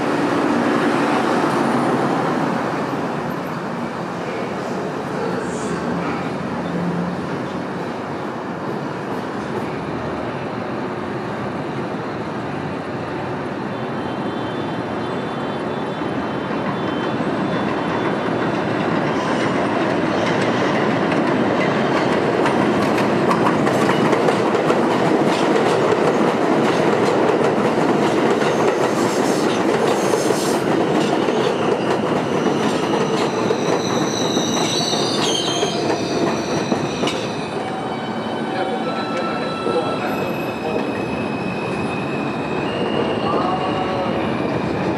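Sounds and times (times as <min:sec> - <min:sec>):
train wheels squealing: 0:13.6 - 0:19.5, 0:28.4 - 0:44.9.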